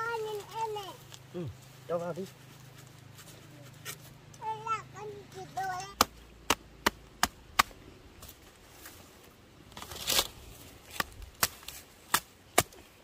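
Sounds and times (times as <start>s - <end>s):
machete chopping stalk: 6.0s - 7.8s, 10.9s - 12.8s.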